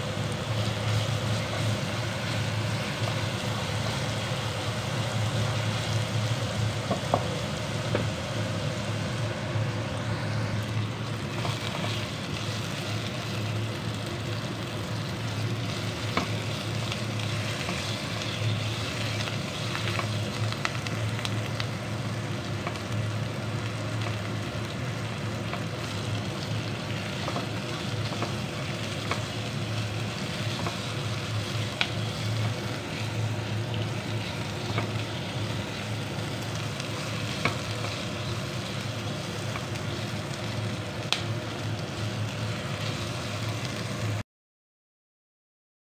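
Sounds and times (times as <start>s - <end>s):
low steady hum: 0.0s - 44.2s
onions sizzling in frying pan: 0.0s - 44.2s.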